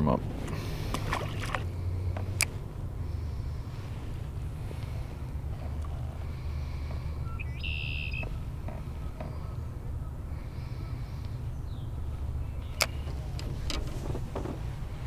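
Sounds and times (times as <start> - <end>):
distant traffic: 0.0 - 15.0
wind rumble: 0.0 - 15.0
short high bird call: 7.3 - 8.3.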